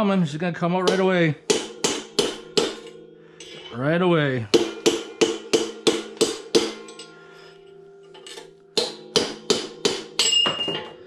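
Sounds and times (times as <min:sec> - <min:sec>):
metal housing ringing: 0:00.0 - 0:11.0
hammer striking metal punch: 0:00.8 - 0:03.8, 0:04.4 - 0:07.1, 0:08.1 - 0:11.0.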